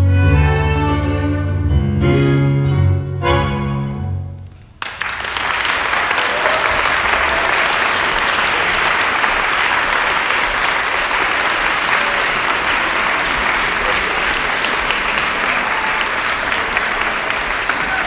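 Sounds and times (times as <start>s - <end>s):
string orchestra note: 0.0s - 4.4s
audience applause: 4.8s - 18.0s.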